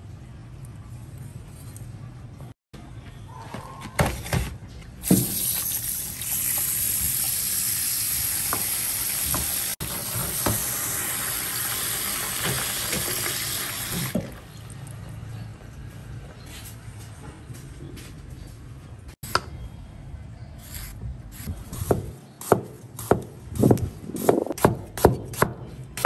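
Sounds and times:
tap water running onto ice: 5.6 - 14.2.

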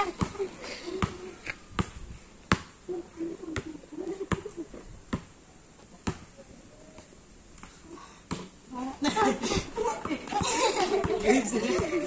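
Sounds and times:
basketball bouncing on dirt: 0.0 - 0.4, 1.0 - 1.2, 1.8 - 2.8, 5.1 - 5.3, 6.0 - 6.3, 10.0 - 12.0.

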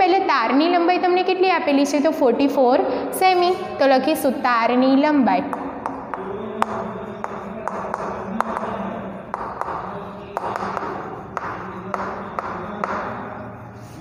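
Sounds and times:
chalk tapping on board: 5.5 - 13.6
chalk scratching on blackboard: 5.5 - 14.0.

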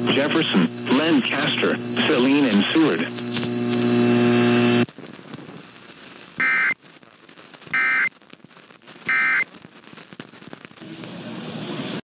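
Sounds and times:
loud steady buzz: 0.0 - 4.9, 6.4 - 6.8
faint radio static: 0.0 - 12.0.

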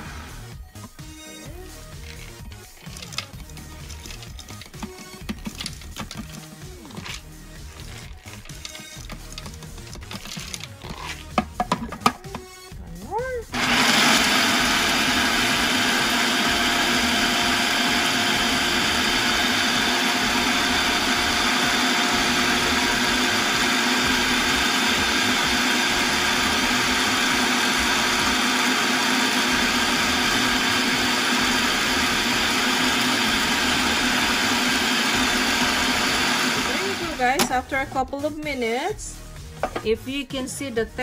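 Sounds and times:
food processor motor grinding: 13.5 - 37.5.

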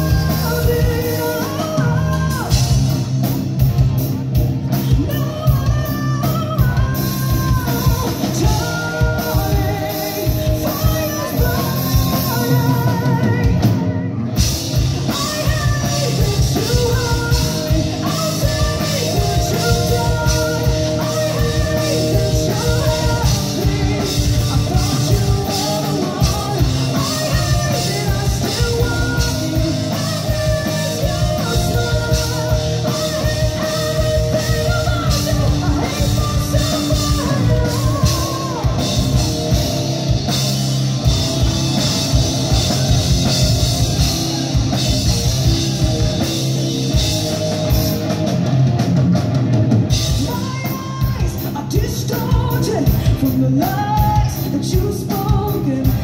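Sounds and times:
woman singing: 0.0 - 2.9, 4.8 - 40.5, 49.9 - 56.0
bass guitar: 0.0 - 56.0
drum kit: 0.0 - 56.0
electric guitars: 0.0 - 56.0.

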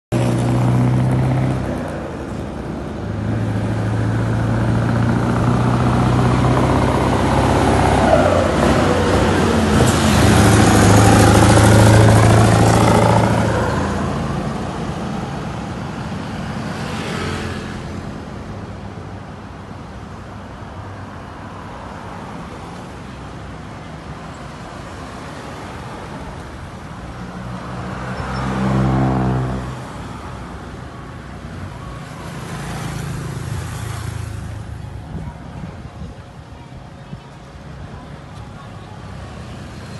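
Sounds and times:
truck engine passing loudly: 0.1 - 18.2, 27.0 - 30.1
steady road traffic: 0.1 - 39.9
motorcycle going by: 3.7 - 14.1.

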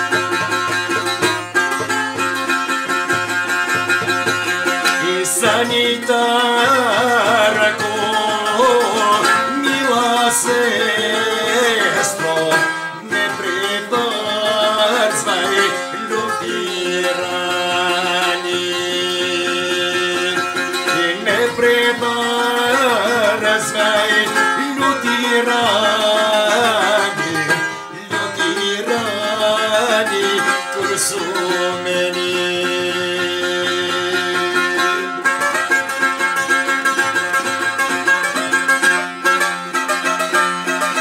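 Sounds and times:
lute strumming and plucking: 0.0 - 41.0
man singing: 4.6 - 35.4.

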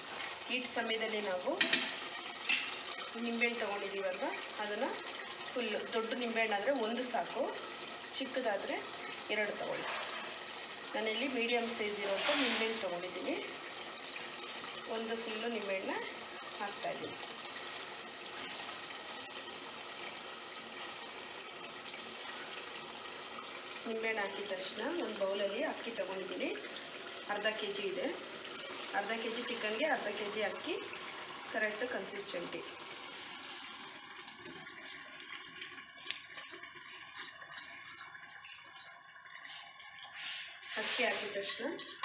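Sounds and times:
food bubbling and sizzling in oil: 0.0 - 42.0
wet rice scraped from a bowl: 39.4 - 41.7.

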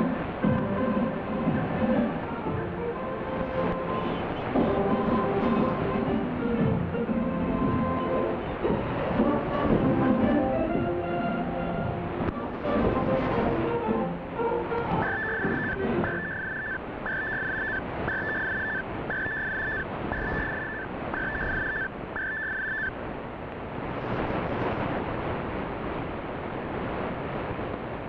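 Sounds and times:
radio static hiss: 0.0 - 6.8, 11.9 - 28.0
short beeps: 15.0 - 22.9.

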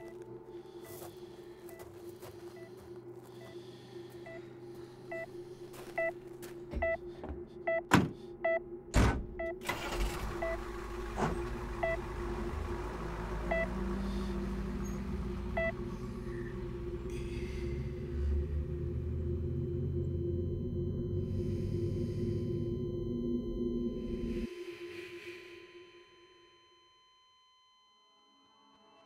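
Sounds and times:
patient monitor beeping: 0.0 - 0.8, 2.5 - 8.8, 11.8 - 12.0, 13.5 - 13.8, 15.6 - 15.9, 18.8 - 24.5
steady low drone: 0.0 - 26.2
low rumble: 2.9 - 24.5.

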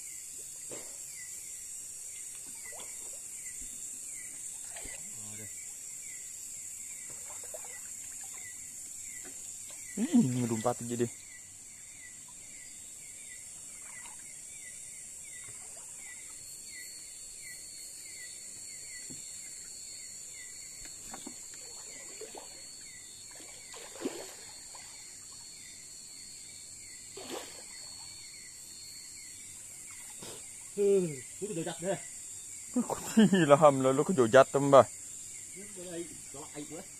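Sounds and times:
insect chirping: 0.0 - 36.9
insect chorus drone: 0.0 - 36.9
water splashes from wading: 4.6 - 5.1, 7.1 - 8.5, 21.6 - 22.6, 23.3 - 25.0, 27.2 - 27.8.

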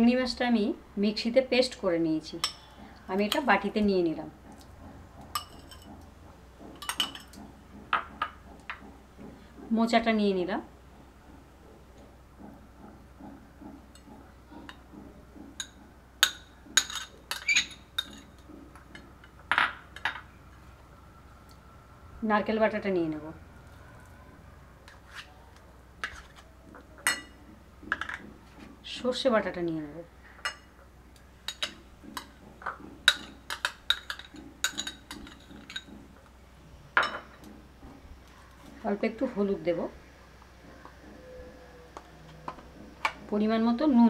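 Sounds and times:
spoon clinking against bowls: 15.6 - 20.3, 33.1 - 35.9.

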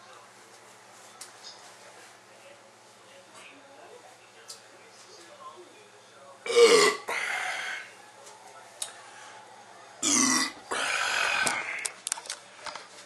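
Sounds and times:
man belching: 6.5 - 7.2, 10.0 - 11.8.

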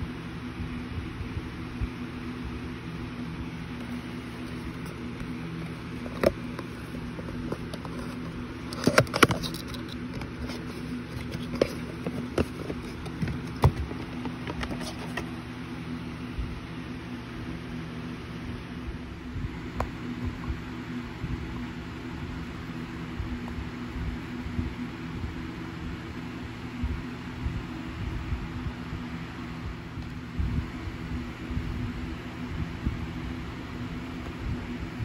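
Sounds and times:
steady low hum: 0.0 - 35.0
box handling taps and rustles: 3.8 - 15.4.

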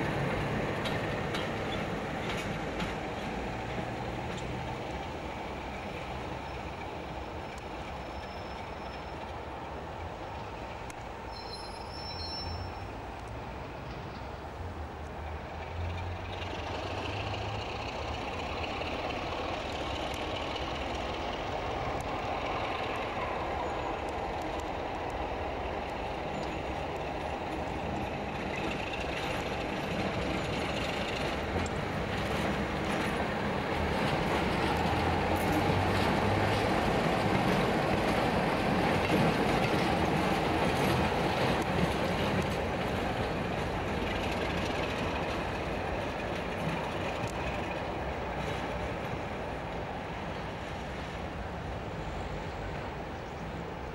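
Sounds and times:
wheel and rail noise: 0.0 - 53.9
diesel locomotive engine running: 12.9 - 53.9.

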